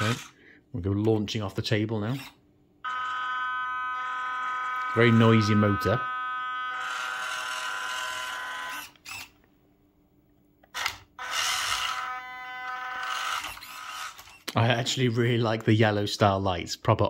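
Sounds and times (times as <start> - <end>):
toy truck motor whining: 0.0 - 0.4, 2.1 - 9.4, 10.8 - 14.5.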